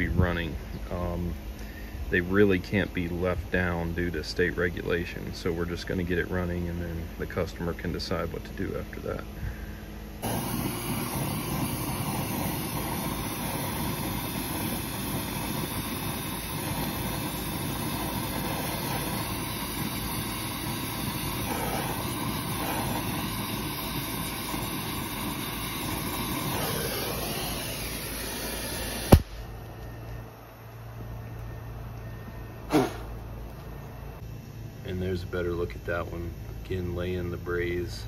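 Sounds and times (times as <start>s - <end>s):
torch flame roaring: 9.4s - 32.0s, 32.6s - 36.0s
torch cutting off with pop: 10.2s - 30.2s, 32.7s - 33.6s.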